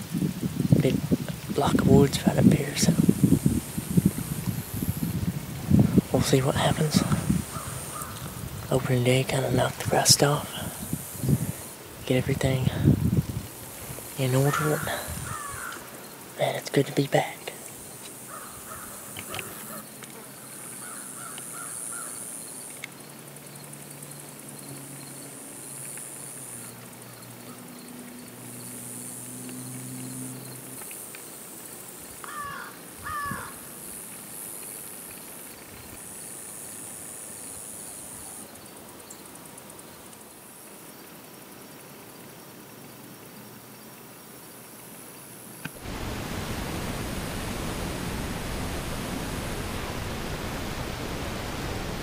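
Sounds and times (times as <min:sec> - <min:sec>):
insects buzzing: 0:00.0 - 0:52.0
bird calling: 0:07.3 - 0:08.4, 0:14.2 - 0:16.3, 0:17.7 - 0:22.6, 0:32.2 - 0:33.6
low steady hum: 0:45.8 - 0:52.0.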